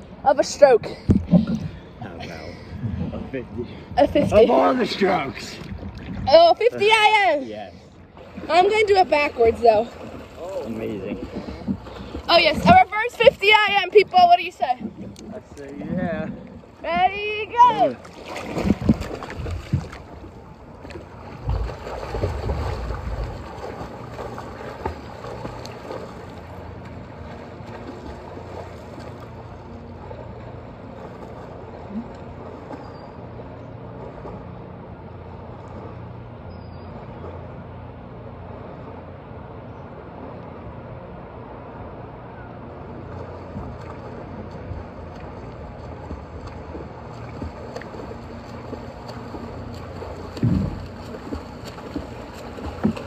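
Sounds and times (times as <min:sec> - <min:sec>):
water lapping and sloshing: 0:00.0 - 0:53.0
wind buffeting microphone: 0:08.2 - 0:20.5, 0:21.2 - 0:26.1.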